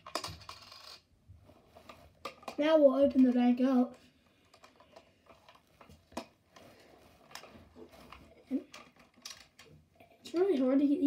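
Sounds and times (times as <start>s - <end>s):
hard plastic clicks and scrapes: 3.2s - 10.4s.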